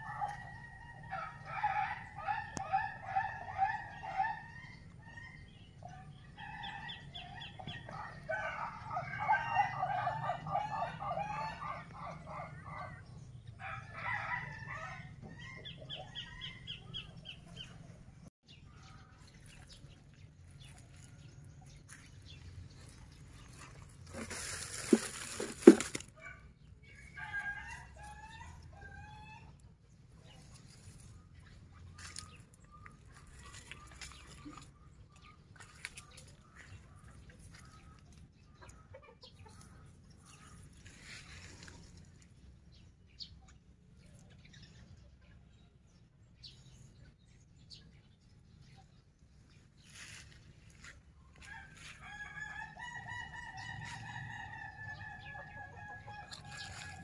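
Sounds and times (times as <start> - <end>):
rustling: 23.5 - 26.1.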